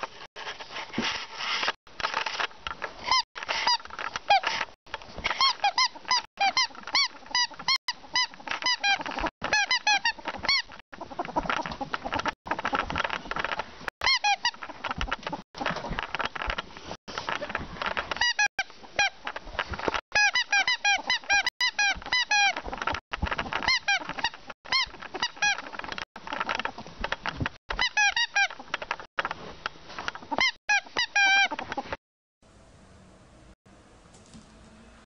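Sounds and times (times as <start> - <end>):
ferret dooking: 5.3 - 16.6, 17.2 - 29.0, 30.0 - 32.0.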